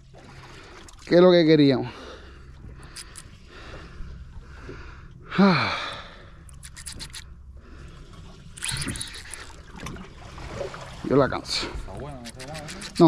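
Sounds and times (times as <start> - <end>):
sea and wind: 0.0 - 13.0
fishing reel clicks: 2.9 - 3.3, 6.5 - 7.3, 8.6 - 9.6, 12.2 - 13.0.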